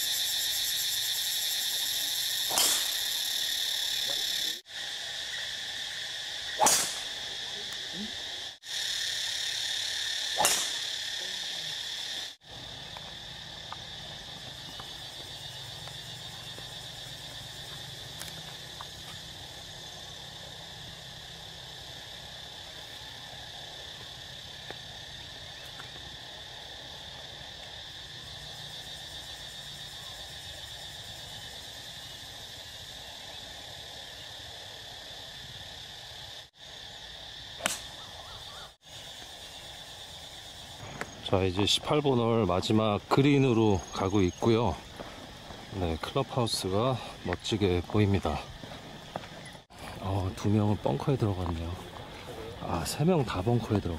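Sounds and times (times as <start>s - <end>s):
high-pitched insect chorus: 0.0s - 53.9s
golf club striking ball: 2.5s - 3.1s, 6.6s - 7.2s, 10.4s - 10.9s, 37.6s - 38.0s.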